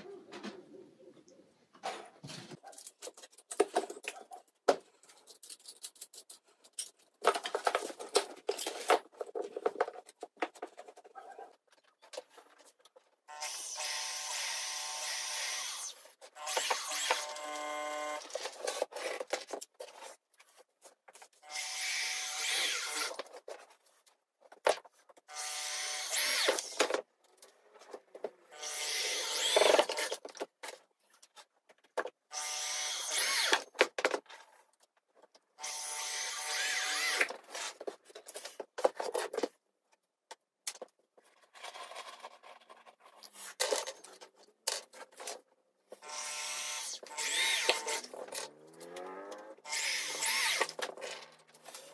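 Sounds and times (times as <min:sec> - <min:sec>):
electric drill driving screws: 0:13.3 - 0:18.3, 0:21.4 - 0:23.1, 0:25.3 - 0:26.8, 0:28.5 - 0:30.1, 0:32.3 - 0:33.7, 0:35.6 - 0:37.3, 0:46.0 - 0:50.8.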